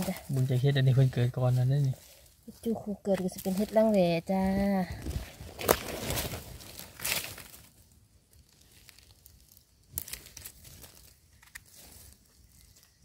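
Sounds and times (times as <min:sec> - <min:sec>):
dry leaves rustling and crackling: 0:00.0 - 0:13.0.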